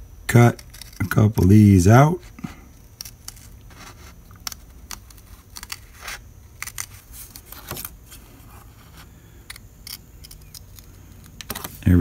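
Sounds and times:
paper rustling: 3.2 - 9.1.

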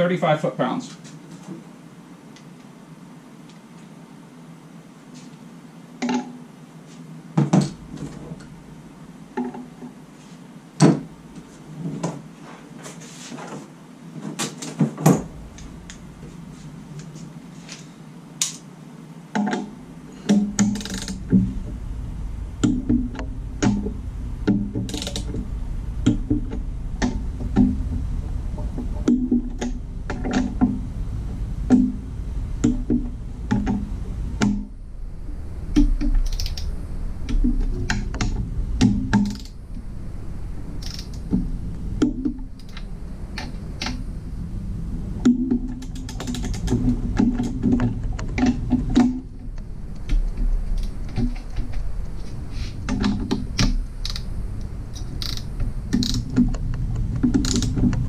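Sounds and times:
ratcheting wrench clicking: 20.6 - 21.2, 24.9 - 25.3, 36.2 - 36.7, 39.1 - 39.6, 40.8 - 41.2, 53.6 - 54.2, 55.0 - 56.3, 57.4 - 57.7.

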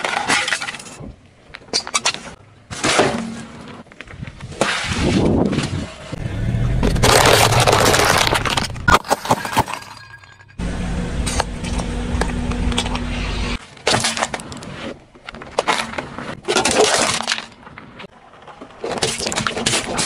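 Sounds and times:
tyres crushing objects: 0.0 - 10.6
car rumbling: 5.8 - 13.6.

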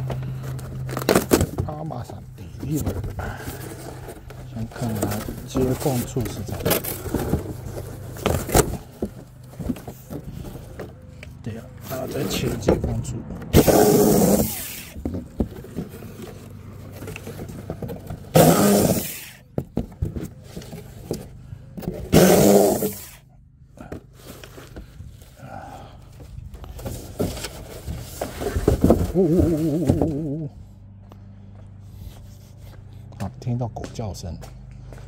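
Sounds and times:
electric saw cutting cardboard: 13.5 - 15.0, 18.3 - 19.4, 22.1 - 23.2.

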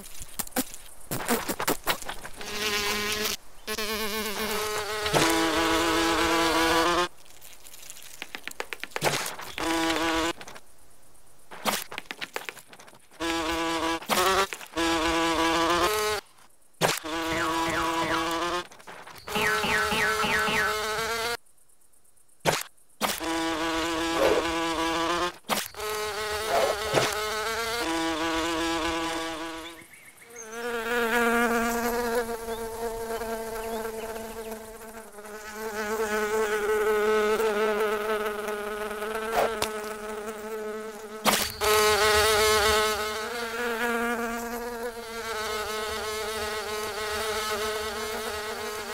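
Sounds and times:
cartoon wings buzzing: 23.0 - 29.8.

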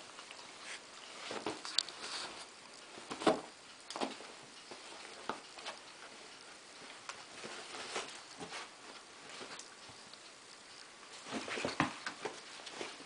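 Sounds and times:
dogs wrestling scuffles: 1.1 - 6.2, 7.3 - 9.9, 11.2 - 13.0.

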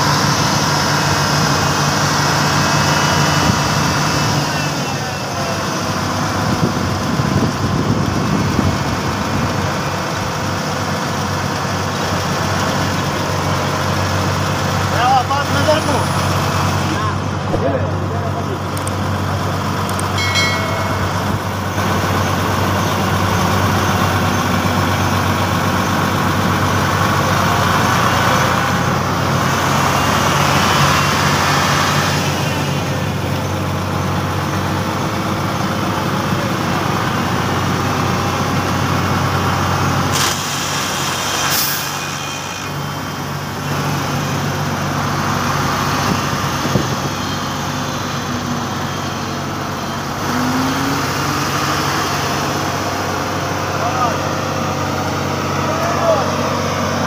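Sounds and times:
diesel engines running: 0.0 - 57.0
brief hisses: 40.1 - 42.7.

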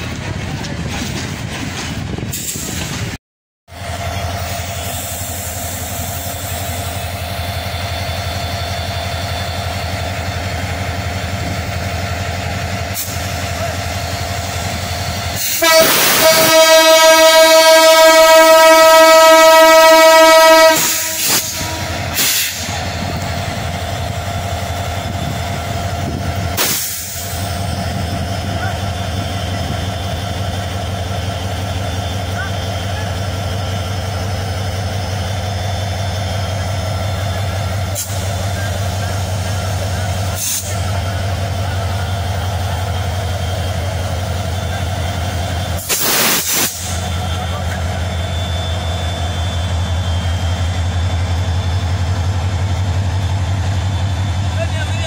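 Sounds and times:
train rumbling past on track: 0.0 - 55.0
locomotive horn blast: 15.4 - 22.8
air hiss: 45.8 - 47.2.

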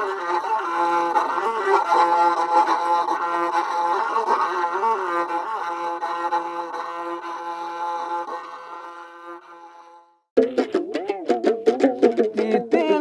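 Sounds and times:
bowed fiddle melody: 0.0 - 10.2.

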